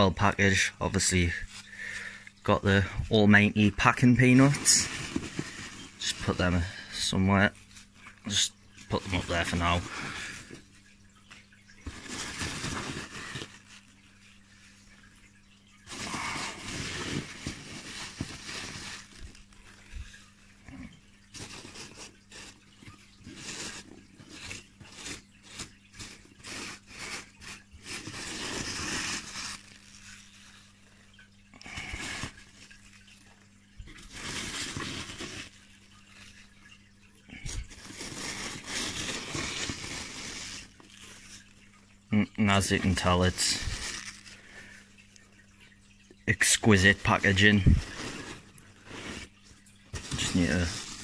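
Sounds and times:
packing peanuts rustling: 3.7s - 10.6s, 11.8s - 14.0s, 15.8s - 30.8s, 33.9s - 36.4s, 37.3s - 41.6s, 42.5s - 44.8s, 46.3s - 49.3s, 49.9s - 51.0s.

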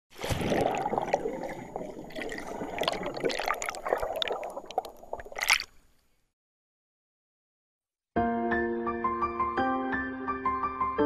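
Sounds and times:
water bubbling and gurgling: 0.1s - 5.9s.

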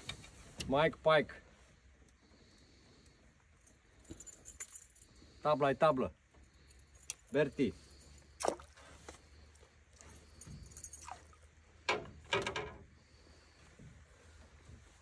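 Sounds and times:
fish tail slapping water: 8.4s - 8.8s.

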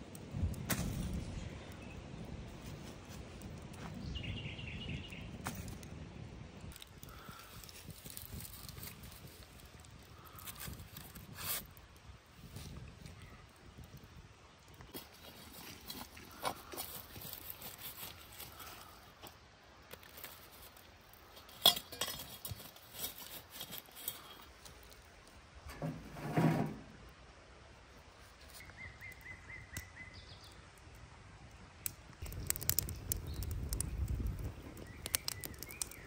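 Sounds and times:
rustling: 14.9s - 19.3s, 19.9s - 26.9s.

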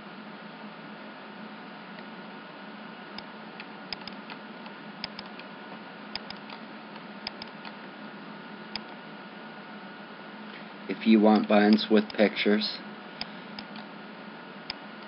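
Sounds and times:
recording hiss and hum: 0.0s - 15.0s
computer mouse clicking: 3.2s - 4.4s, 5.0s - 5.5s, 6.1s - 7.8s, 13.2s - 13.9s.

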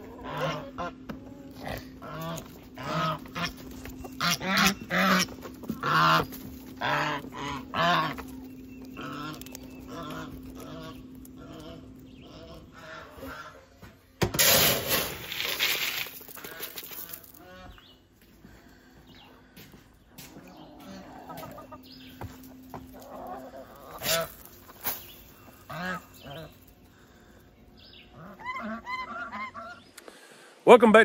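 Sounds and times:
goose honking: 0.0s - 13.9s, 20.8s - 27.4s, 28.0s - 29.9s.

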